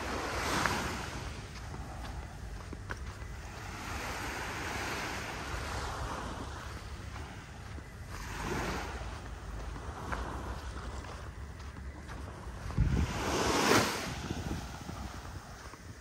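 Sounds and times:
wind rumbling on microphone: 0.0s - 16.0s
surf breaking on beach: 12.7s - 15.2s.

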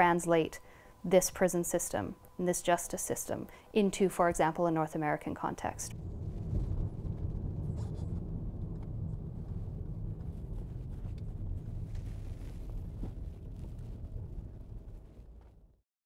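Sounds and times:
van driving past: 5.9s - 15.5s
wind on microphone: 5.9s - 15.6s.

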